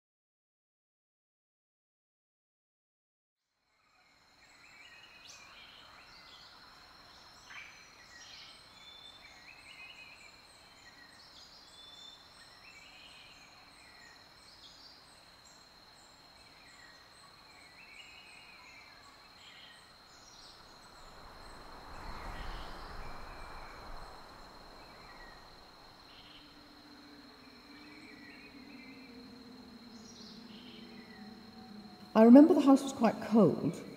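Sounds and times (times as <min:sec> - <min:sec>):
small birds singing: 0:04.2 - 0:33.7
rushing noise with low rumble: 0:20.4 - 0:27.4.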